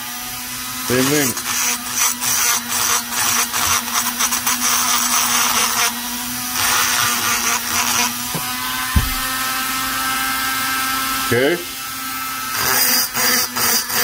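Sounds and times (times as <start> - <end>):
rotary tool motor whine: 0.0 - 14.0
dull thump: 8.3 - 9.5.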